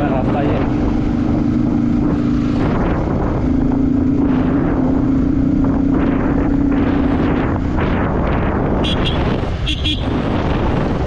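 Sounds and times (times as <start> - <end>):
motorcycle engine running: 0.0 - 11.0
wind noise on microphone: 0.0 - 11.0.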